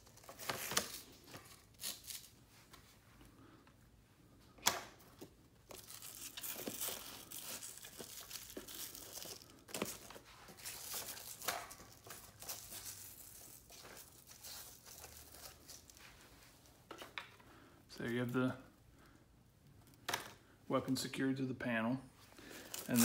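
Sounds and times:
hook-and-loop straps ripping: 0.0s - 2.4s, 5.6s - 16.1s, 22.5s - 23.0s.

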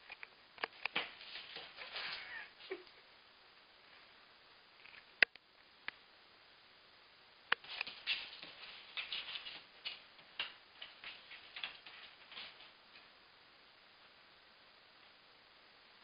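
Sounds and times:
cat paws clicking on hard floor: 0.6s - 2.8s, 7.5s - 13.1s.

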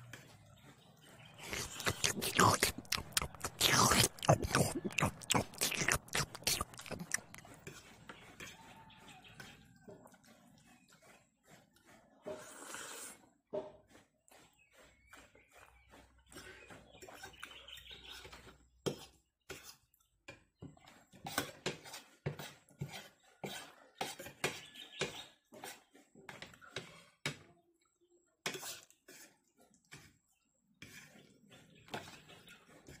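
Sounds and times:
noodles slurped and chewed: 0.1s - 20.2s, 28.5s - 33.0s
cutlery scraping a ceramic plate: 15.9s - 27.4s, 28.4s - 29.3s.

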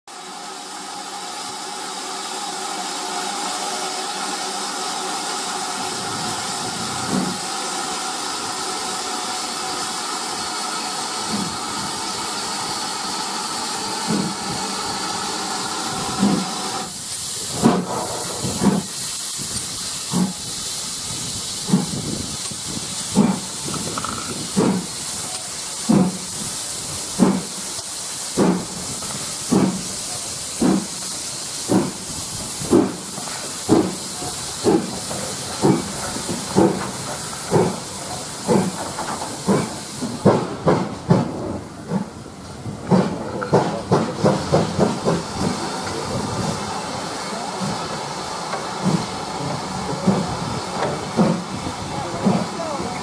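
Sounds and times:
steam hissing: 0.1s - 53.0s
steam locomotive chuffing: 0.1s - 53.0s.

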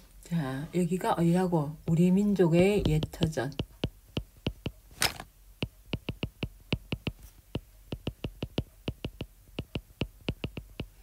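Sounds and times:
stylus tapping on glass screen: 2.6s - 4.8s, 5.6s - 11.0s.

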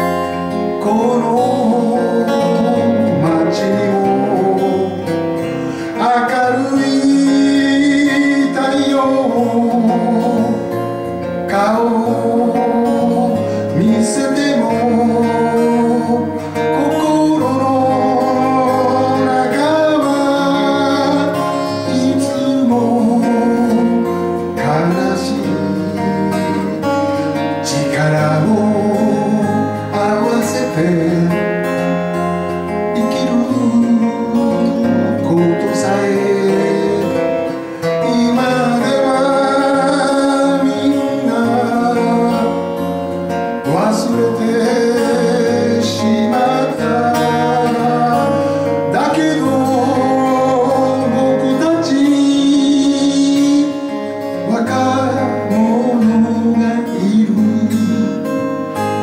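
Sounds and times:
acoustic guitar strumming: 0.0s - 59.0s
man singing folk song: 0.0s - 59.0s.

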